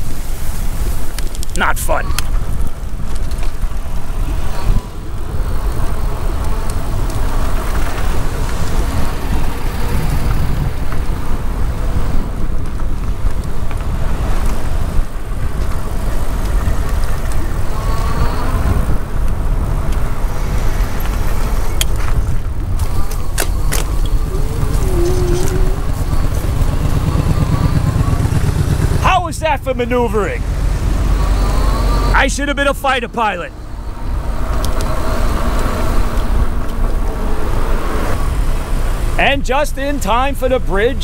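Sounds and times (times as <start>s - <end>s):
passing cars: 0.0s - 41.0s
wind and road noise: 0.0s - 41.0s.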